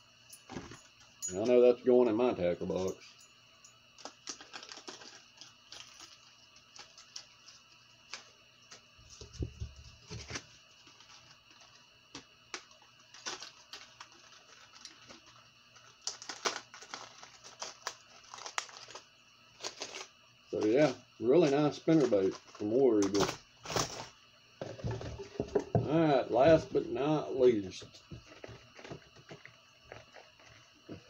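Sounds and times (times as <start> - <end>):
plastic package crackling: 12.6 - 20.8, 21.4 - 24.1.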